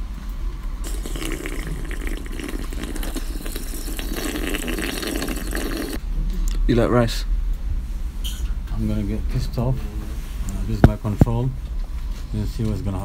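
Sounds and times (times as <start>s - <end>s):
drink being slurped: 0.8s - 6.0s
gurgling: 0.8s - 6.0s.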